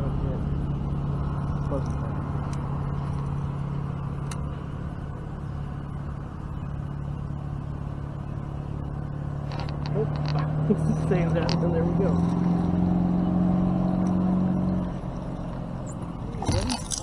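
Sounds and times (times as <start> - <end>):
low motor hum: 0.0 - 17.0.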